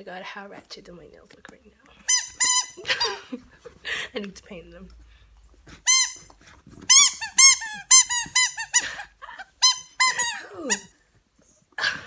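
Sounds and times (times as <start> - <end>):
squeaky dog toy squeaking: 2.0 - 3.2, 5.8 - 11.0.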